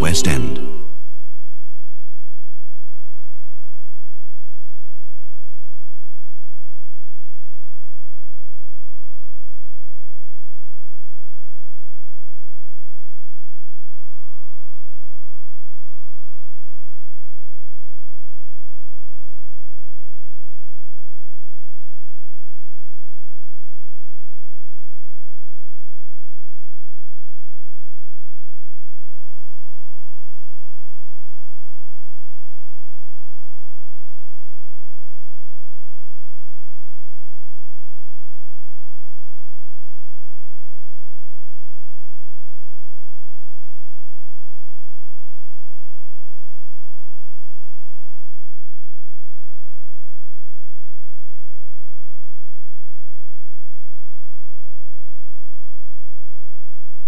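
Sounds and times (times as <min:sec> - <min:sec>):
tape hiss: 0:00.0 - 0:02.8.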